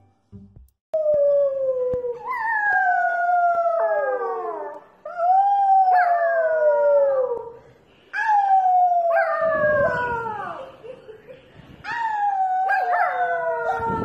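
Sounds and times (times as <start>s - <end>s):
puppy howling: 11.9s - 14.0s.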